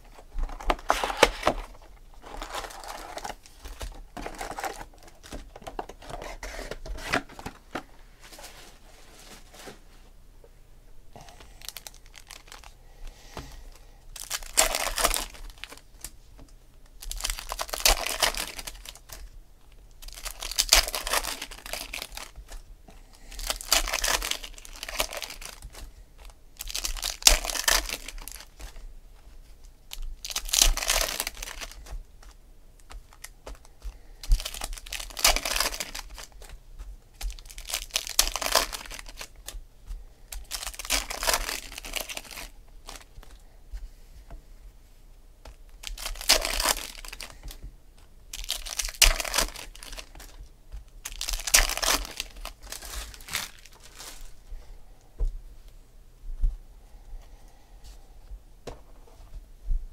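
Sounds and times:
foil wrappers crinkling and tearing: 0:00.0 - 0:08.6, 0:11.5 - 0:12.7, 0:13.5 - 0:16.2, 0:17.0 - 0:39.6, 0:40.3 - 0:43.4, 0:45.5 - 0:47.7, 0:48.3 - 0:54.4.

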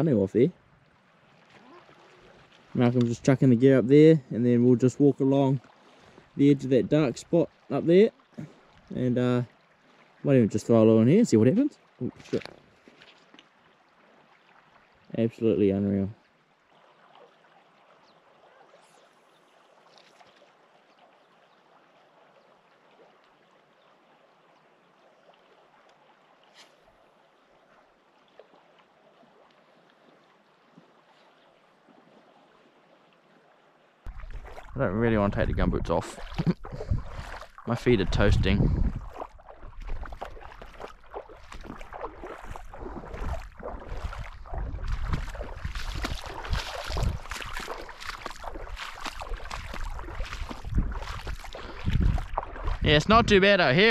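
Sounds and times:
faint lakeside water hiss: 0:00.0 - 0:53.9
wind rumble on microphone: 0:34.1 - 0:40.8, 0:41.5 - 0:53.4.

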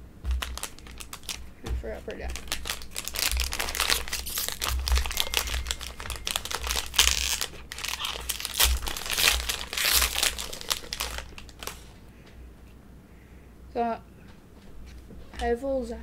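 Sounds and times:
foil wrapper crinkling: 0:00.3 - 0:11.9.

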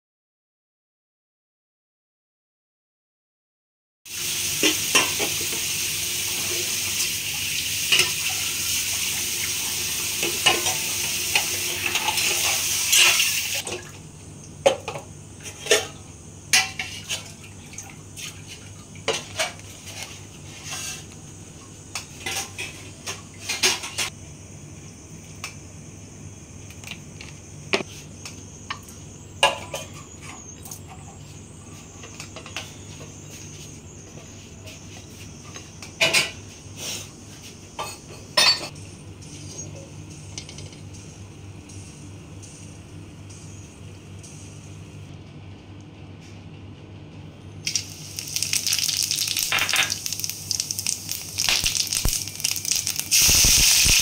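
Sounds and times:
loud steady hiss with clicks: 0:25.2 - 0:25.7, 0:26.6 - 0:29.0, 0:40.1 - 0:45.1, 0:47.6 - 0:54.0.

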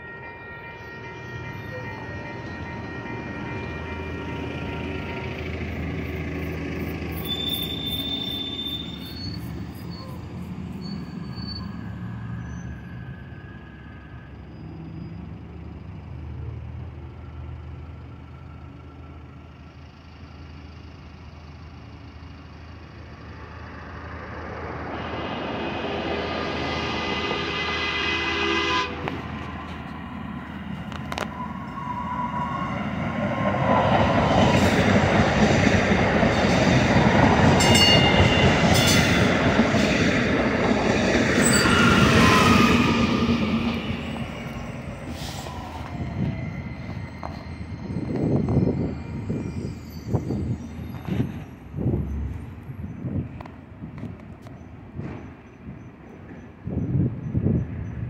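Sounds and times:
train horn: 0:00.0 - 0:06.2, 0:26.7 - 0:30.0
train rolling noise: 0:00.0 - 0:58.0.

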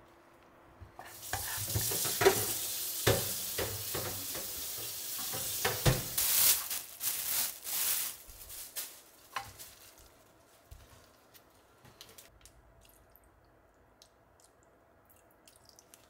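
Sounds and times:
vegetables sizzling in oil: 0:01.0 - 0:08.4.

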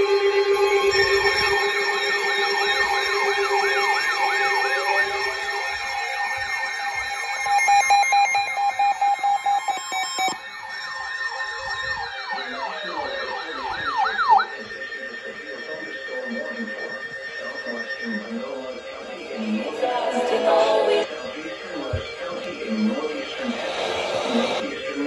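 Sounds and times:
steady tones: 0:18.1 - 0:24.8.

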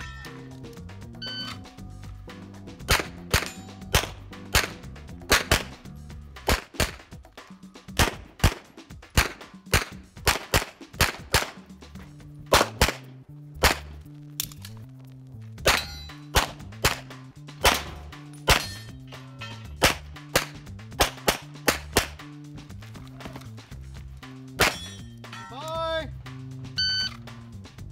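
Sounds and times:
pistol shots: 0:02.8 - 0:07.2, 0:07.9 - 0:11.7, 0:12.5 - 0:14.0, 0:15.6 - 0:18.9, 0:19.8 - 0:22.2, 0:24.6 - 0:24.9
steel targets clanging: 0:02.9 - 0:04.8, 0:15.6 - 0:16.6, 0:17.6 - 0:20.6, 0:24.6 - 0:26.0.

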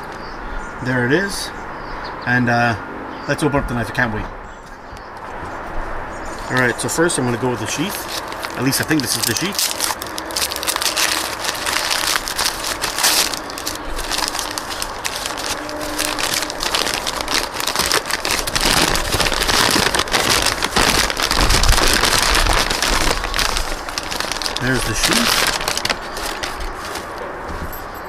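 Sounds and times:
packing paper crinkling: 0:06.4 - 0:27.8.

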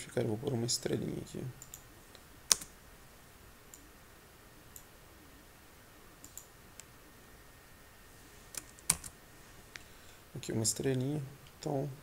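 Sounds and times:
computer mouse clicking: 0:01.6 - 0:01.8, 0:02.5 - 0:02.7, 0:06.2 - 0:06.9.

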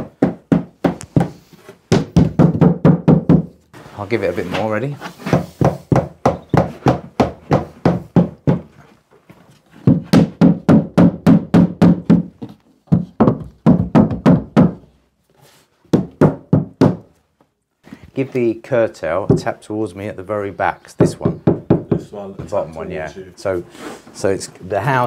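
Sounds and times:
rubber mallet thudding on wood: 0:00.0 - 0:03.6, 0:05.2 - 0:08.8, 0:09.8 - 0:14.9, 0:15.9 - 0:17.2, 0:19.2 - 0:19.5.

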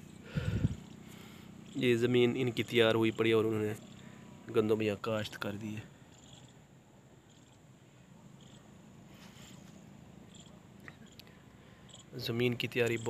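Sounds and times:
high-pitched insect trill: 0:00.4 - 0:04.2, 0:06.1 - 0:07.7, 0:08.4 - 0:08.7, 0:10.3 - 0:13.0.

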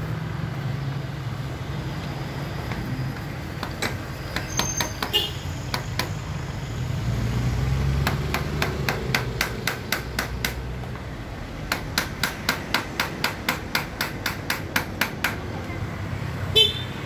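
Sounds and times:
hand tool tapping on metal: 0:02.6 - 0:06.2, 0:08.0 - 0:15.5.

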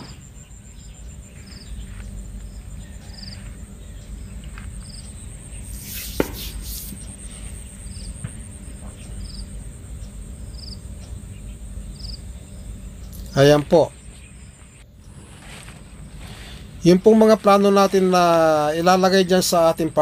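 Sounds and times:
insects chirping: 0:00.0 - 0:20.0
steady high buzz: 0:00.0 - 0:20.0.

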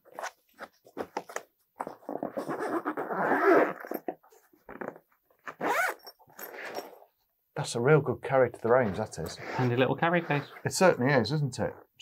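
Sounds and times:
zipper being pulled: 0:02.0 - 0:04.1, 0:04.7 - 0:07.0, 0:08.8 - 0:10.7.

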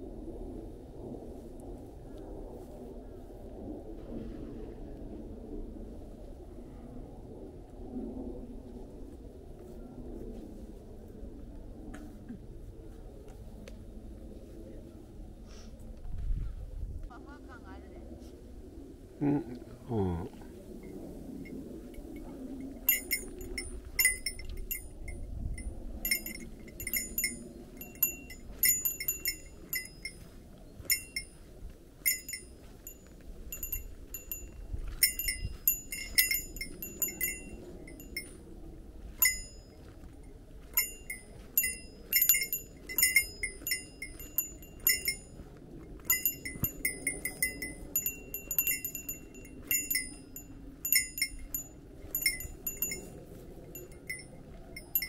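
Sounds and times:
low steady rumble: 0:16.3 - 0:55.0
small metal bell jingling: 0:20.8 - 0:38.5, 0:39.1 - 0:40.0, 0:40.6 - 0:55.0.

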